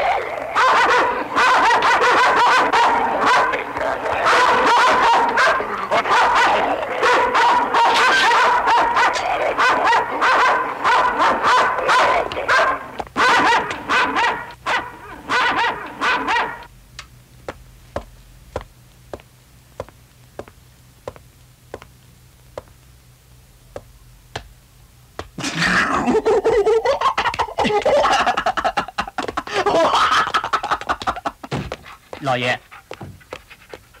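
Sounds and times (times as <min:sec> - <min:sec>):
dogs barking: 0:00.0 - 0:16.7.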